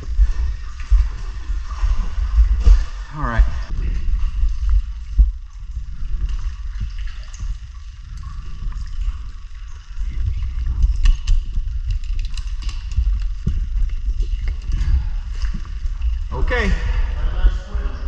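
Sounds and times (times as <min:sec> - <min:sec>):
low muffled rumble: 0:00.0 - 0:18.0
water sloshing and gurgling: 0:00.0 - 0:18.0
dive gear clicks and knocks: 0:03.7 - 0:16.4.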